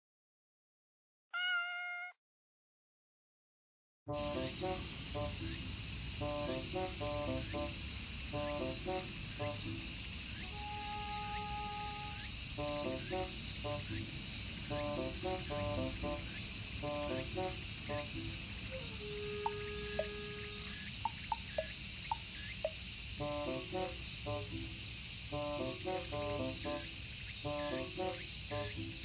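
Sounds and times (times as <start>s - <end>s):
soft background music: 4.1s - 10.0s, 10.6s - 20.7s, 23.2s - 29.0s
insects chirring: 4.1s - 29.0s.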